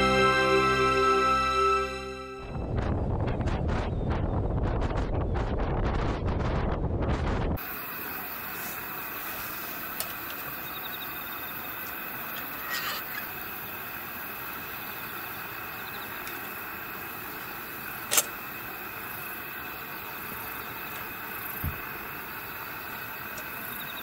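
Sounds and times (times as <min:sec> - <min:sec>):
steady hiss: 0:07.6 - 0:24.0.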